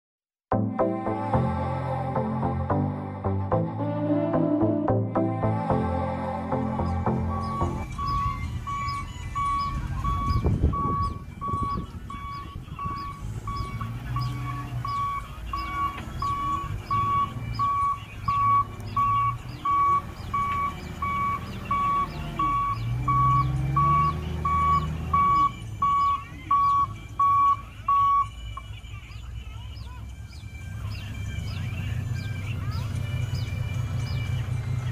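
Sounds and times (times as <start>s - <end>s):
truck engine running: 1.1s - 34.9s
reversing alarm beeping: 6.5s - 29.0s.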